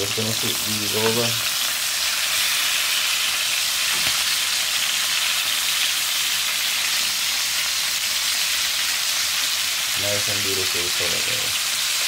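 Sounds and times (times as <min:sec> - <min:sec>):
fork turning chicken in pan: 0:00.0 - 0:01.7
chicken sizzling in a frying pan: 0:00.0 - 0:12.0.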